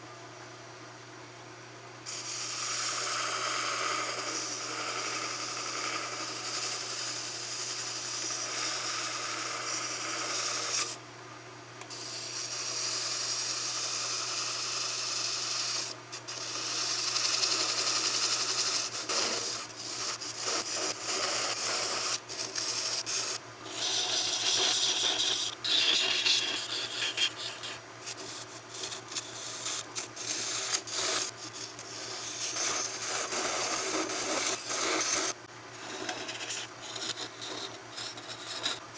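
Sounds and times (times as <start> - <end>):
tool scraping spinning wood: 2.1 - 11.0, 11.9 - 38.9
lathe humming: 2.2 - 11.0, 16.6 - 38.9.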